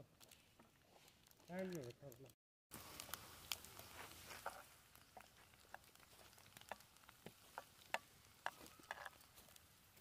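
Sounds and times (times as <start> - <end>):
food frying in a pan: 2.7 - 10.0.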